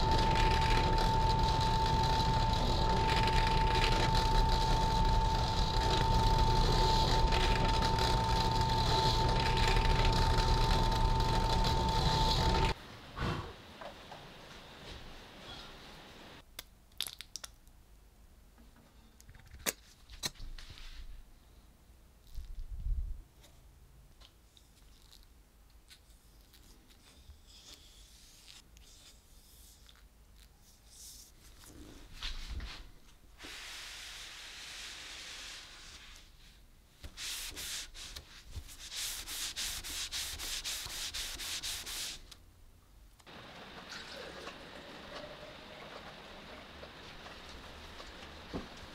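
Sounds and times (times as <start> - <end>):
drill press running: 0.0 - 12.8
cloth rubbing on wood: 37.1 - 42.3.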